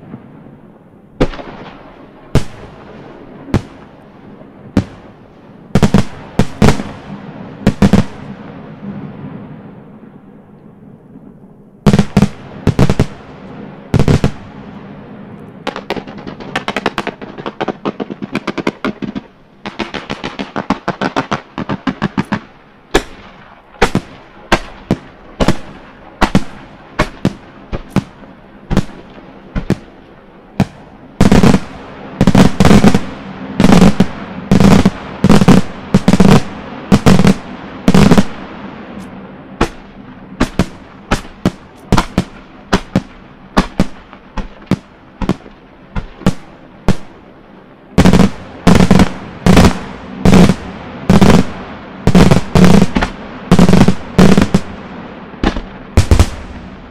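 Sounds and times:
fireworks bangs: 0:00.0 - 0:56.9
fireworks crackling: 0:00.0 - 0:56.9
heavy firework reports: 0:00.0 - 0:56.9.

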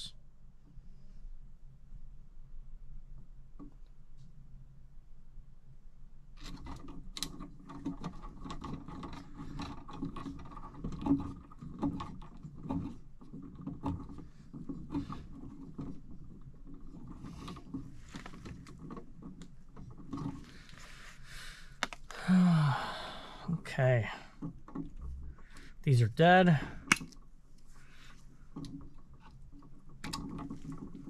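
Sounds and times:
wire nuts clicking and scraping: 0:06.4 - 0:22.1, 0:24.3 - 0:31.0.

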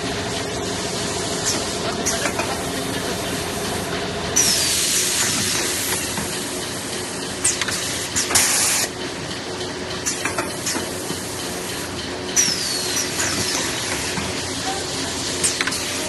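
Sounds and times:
packing machine humming: 0:00.0 - 0:16.0
compressed air hiss: 0:04.4 - 0:06.0.

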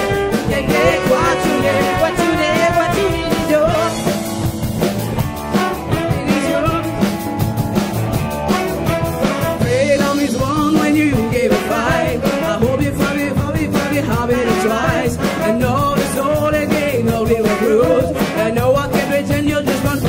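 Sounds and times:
horn section playing: 0:00.0 - 0:04.2, 0:05.5 - 0:07.0, 0:08.4 - 0:09.8
drum kit: 0:00.0 - 0:20.0
woman singing: 0:00.3 - 0:04.1, 0:05.9 - 0:07.0, 0:09.7 - 0:20.0.

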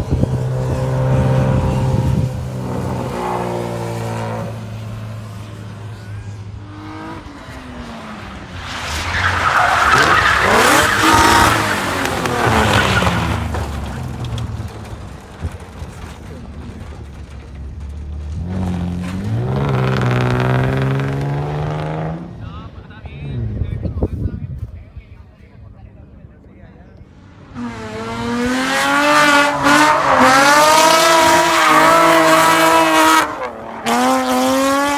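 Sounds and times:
car engines revving: 0:00.0 - 0:23.8, 0:26.2 - 0:34.9
tyres squealing and skidding: 0:07.3 - 0:17.7, 0:27.4 - 0:34.9.

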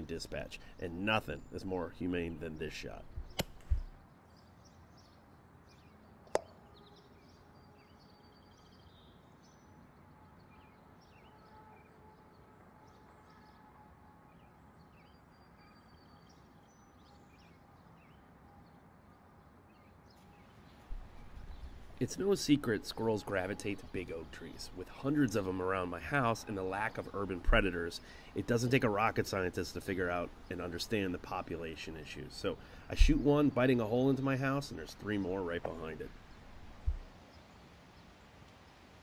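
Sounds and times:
birds chirping: 0:00.0 - 0:38.8
sharp click: 0:03.3 - 0:03.8.

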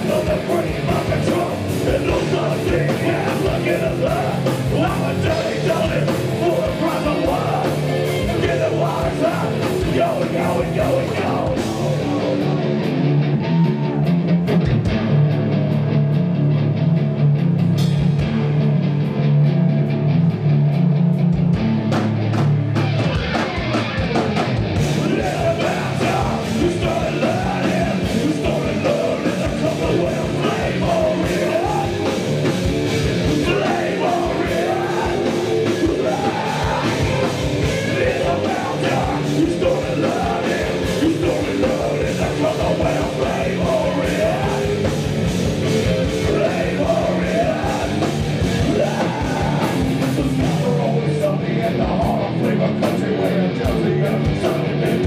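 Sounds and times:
person singing: 0:00.0 - 0:12.6, 0:24.9 - 0:32.4, 0:33.2 - 0:55.0
hard rock band playing: 0:00.0 - 0:55.0
heavy low guitar riff: 0:00.0 - 0:55.0.

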